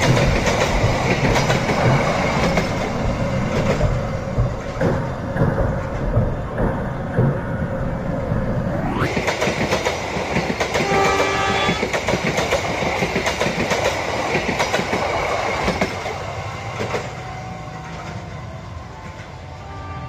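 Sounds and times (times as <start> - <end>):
train wheels clacking over rail joints: 0.0 - 7.8, 9.1 - 17.2.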